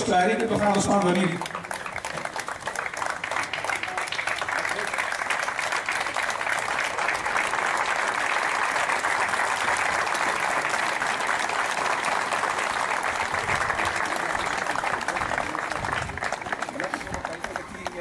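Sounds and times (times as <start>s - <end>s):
crowd applauding: 0.0s - 18.0s.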